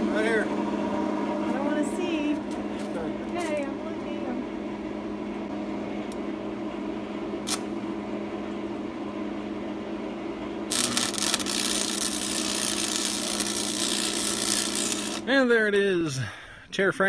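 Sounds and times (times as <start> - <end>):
arc welder humming: 0.0 - 15.4
welding electrode crackling and sizzling: 1.5 - 4.0, 7.4 - 7.7, 10.7 - 15.3.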